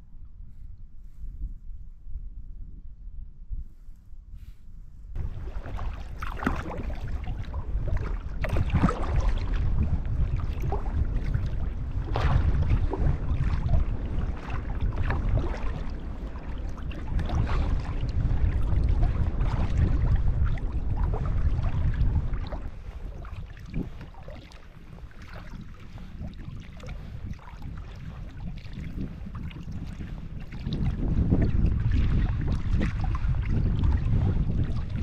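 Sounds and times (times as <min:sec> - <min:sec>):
wind rumble on microphone: 0:00.0 - 0:35.0
water splashing against kayak hull: 0:05.2 - 0:35.0.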